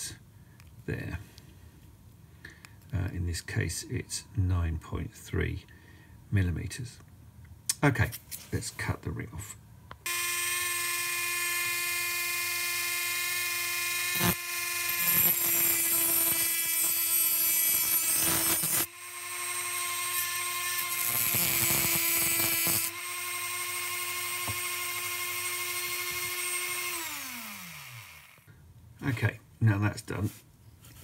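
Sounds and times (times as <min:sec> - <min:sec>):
rotary tool whining: 0:10.1 - 0:28.5.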